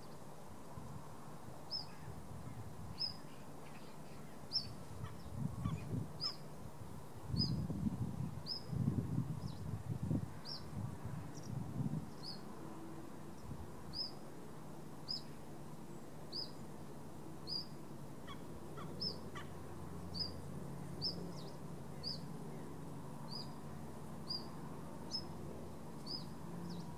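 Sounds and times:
small bird chirping: 0:01.7 - 0:02.1, 0:03.0 - 0:06.4, 0:13.9 - 0:14.2, 0:15.0 - 0:15.4, 0:16.3 - 0:16.6, 0:17.5 - 0:19.5, 0:20.1 - 0:20.4, 0:21.0 - 0:22.3, 0:23.3 - 0:23.6, 0:24.2 - 0:24.5, 0:25.1 - 0:25.3, 0:26.0 - 0:26.9.

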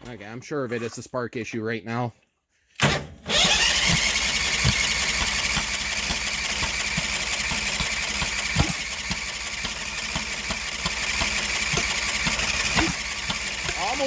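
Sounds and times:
engine cranking by starter: 0:02.8 - 0:14.0
engine thumps trying to fire: 0:02.8 - 0:14.0.

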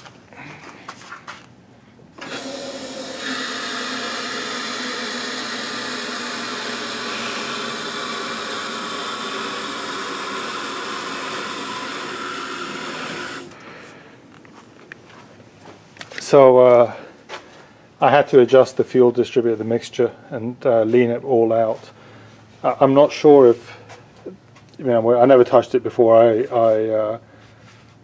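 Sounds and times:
hydraulic car lift whirring: 0:02.1 - 0:13.9.

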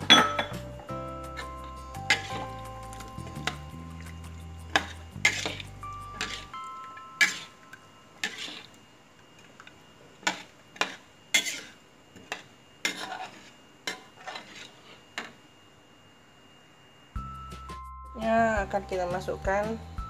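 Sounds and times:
metal spatula scraping a wok: 0:01.4 - 0:02.6, 0:04.7 - 0:06.6, 0:08.2 - 0:08.7, 0:10.8 - 0:11.8, 0:12.8 - 0:14.9.

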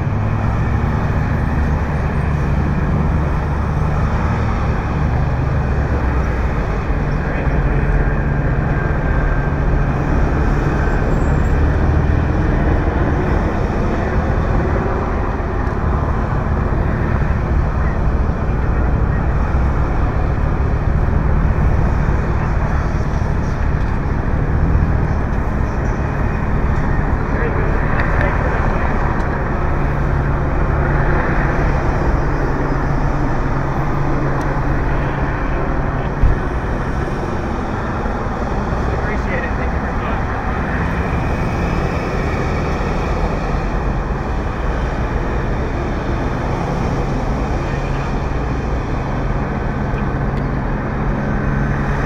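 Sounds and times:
road traffic rumble: 0:00.0 - 0:52.0.

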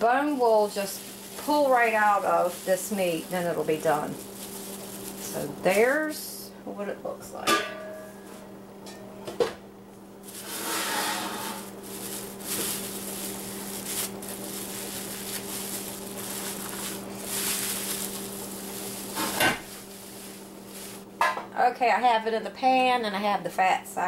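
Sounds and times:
plastic wrap crinkling: 0:00.0 - 0:06.4, 0:10.2 - 0:21.1.

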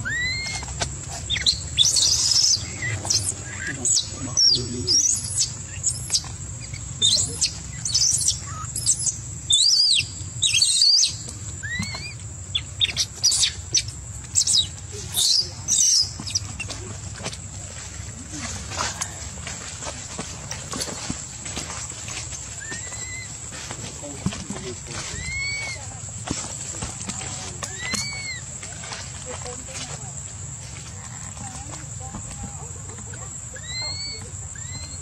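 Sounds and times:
baby monkey squealing: 0:00.0 - 0:16.8, 0:22.6 - 0:23.4, 0:24.9 - 0:25.9, 0:27.6 - 0:28.8, 0:33.0 - 0:35.0.

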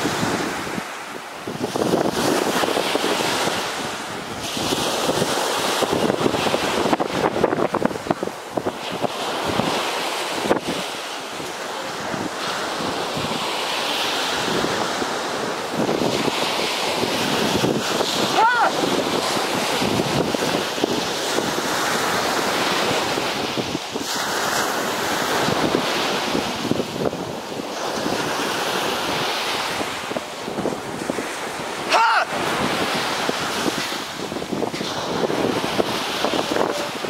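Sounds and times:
surf breaking on beach: 0:00.0 - 0:37.0
wind buffeting microphone: 0:00.0 - 0:37.0
short cry: 0:18.3 - 0:18.8, 0:31.9 - 0:32.4.

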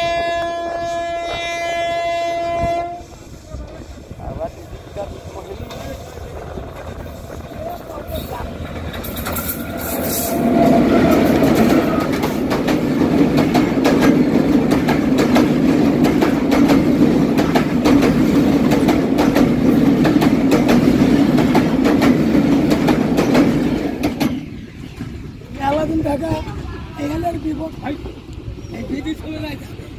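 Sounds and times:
diesel locomotive passing: 0:00.0 - 0:29.9
train coaches rumbling on bridge: 0:00.0 - 0:29.9
wheels clacking over rail joints: 0:04.7 - 0:26.0.

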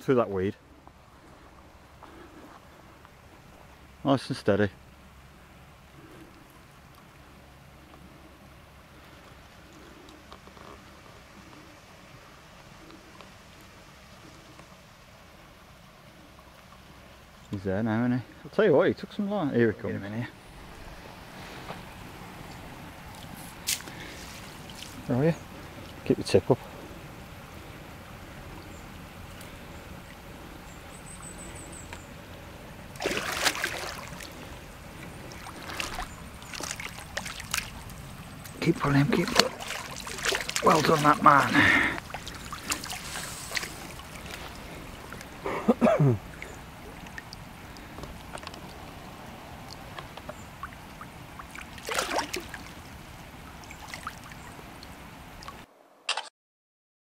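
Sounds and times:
water washing at lake edge: 0:00.0 - 0:55.7
small ticks: 0:09.2 - 0:11.6
fish splashing in water: 0:32.9 - 0:45.4, 0:46.2 - 0:55.6.

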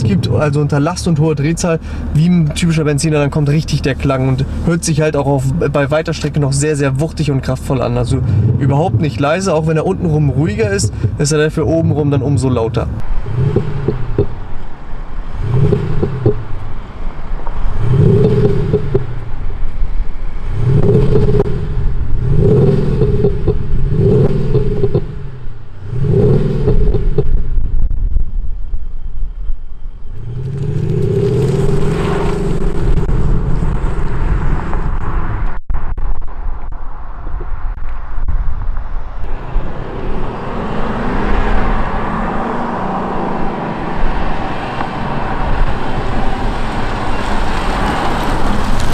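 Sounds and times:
deep engine exhaust revs: 0:13.0 - 0:14.5, 0:15.2 - 0:16.6, 0:17.7 - 0:19.4, 0:20.2 - 0:27.6, 0:30.1 - 0:35.4, 0:39.3 - 0:48.9.

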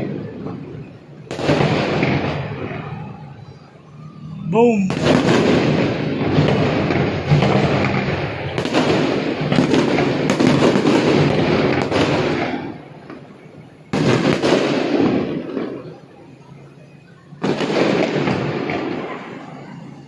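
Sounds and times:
fireworks bursting: 0:00.4 - 0:20.0.

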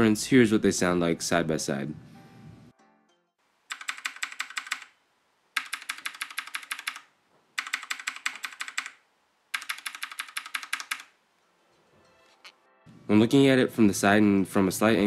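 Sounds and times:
mechanical keyboard clacking: 0:03.7 - 0:04.9, 0:05.6 - 0:09.0, 0:09.6 - 0:11.1.

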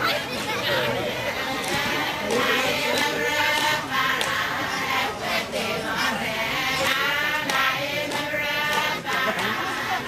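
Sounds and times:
group of people singing a chant: 0:00.0 - 0:10.0
sharp hand claps: 0:01.6 - 0:04.4, 0:06.8 - 0:09.6.

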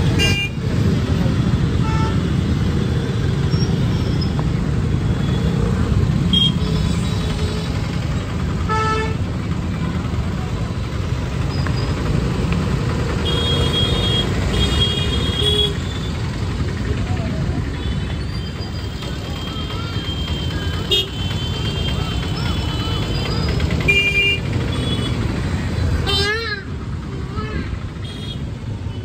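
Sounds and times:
traffic engines rumbling: 0:00.0 - 0:29.0.

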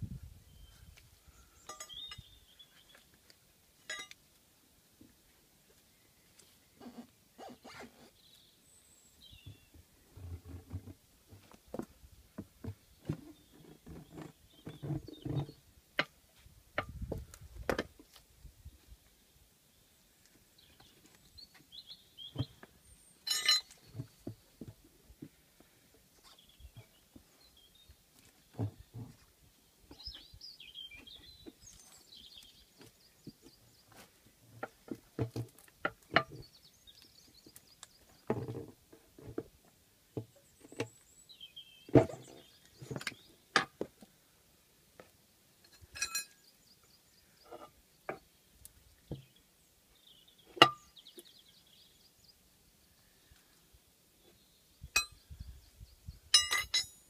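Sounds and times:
ringing metal clank: 0:01.6 - 0:02.2, 0:03.9 - 0:04.2, 0:23.3 - 0:23.7, 0:45.9 - 0:46.4, 0:55.0 - 0:55.2, 0:56.3 - 0:57.0.

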